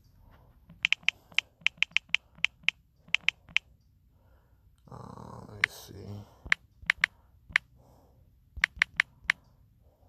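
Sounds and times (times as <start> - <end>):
taps on smartphone keyboard: 0.7 - 3.6, 6.4 - 7.7, 8.6 - 9.4.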